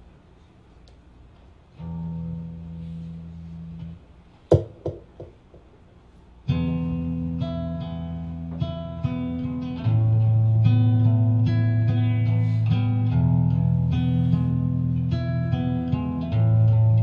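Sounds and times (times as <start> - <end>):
sharp knocks: 4.5 - 5.7
acoustic guitar chords: 6.5 - 17.0.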